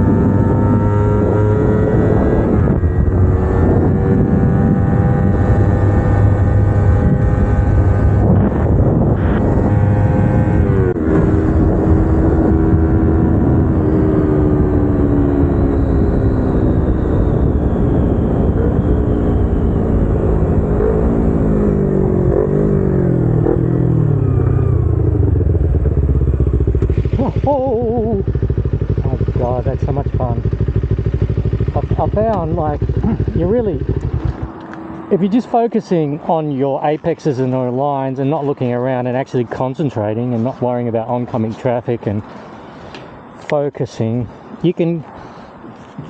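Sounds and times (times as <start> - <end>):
motorcycle engine running hard: 0.0 - 35.6.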